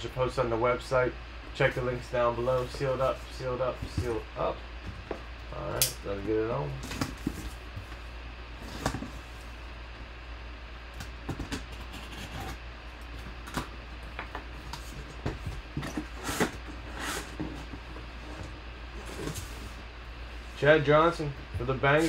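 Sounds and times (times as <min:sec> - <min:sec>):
cardboard scraping and rubbing: 0:11.6 - 0:12.6, 0:14.8 - 0:19.8.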